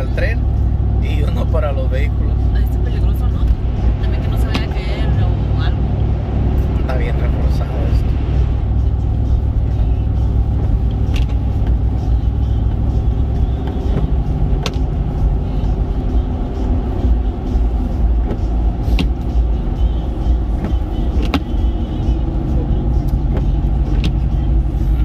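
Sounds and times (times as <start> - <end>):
road and engine rumble: 0.0 - 25.0.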